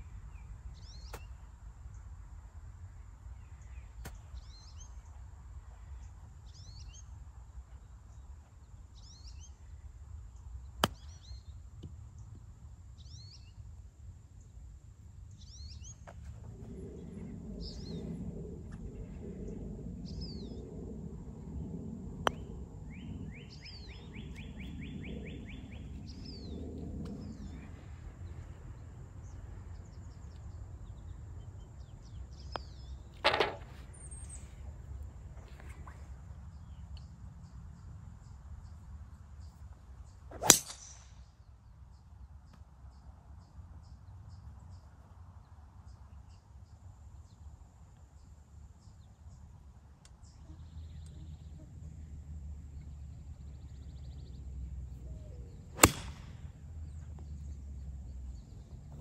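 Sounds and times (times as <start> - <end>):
low rumble: 15.4 - 35.8
birds chirping: 22.2 - 34.6
golf club striking ball: 32.5 - 33.7, 40.3 - 41.0, 55.8 - 56.4
putter striking ball: 32.5 - 33.8.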